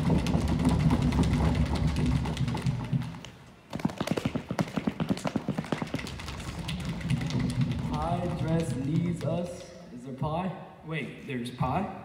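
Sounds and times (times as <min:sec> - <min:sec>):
drum roll: 0:00.0 - 0:03.2, 0:03.8 - 0:09.4.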